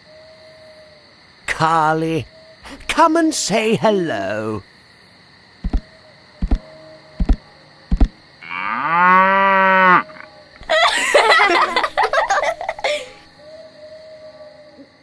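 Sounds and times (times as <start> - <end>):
heavy thumps: 5.6 - 5.8, 6.4 - 6.6, 7.2 - 8.2
cow mooing: 8.4 - 10.3.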